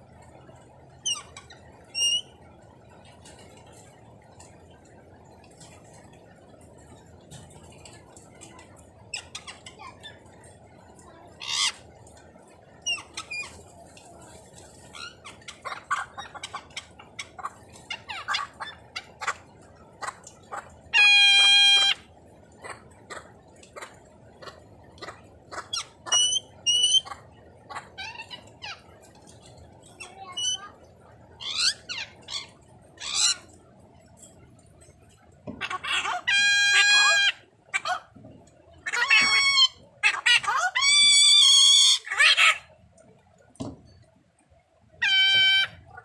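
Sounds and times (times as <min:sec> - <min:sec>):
parrots clicking and chirping: 0:00.9 - 0:02.4, 0:07.2 - 0:30.7, 0:31.3 - 0:44.1, 0:45.0 - 0:46.0
parrot squawk: 0:01.0 - 0:02.3, 0:11.4 - 0:11.8, 0:12.8 - 0:13.6, 0:14.9 - 0:19.4, 0:20.0 - 0:28.9, 0:30.0 - 0:30.7, 0:31.4 - 0:33.5, 0:35.5 - 0:38.2, 0:38.8 - 0:42.7, 0:45.0 - 0:46.0
parrot long held call: 0:45.0 - 0:45.8.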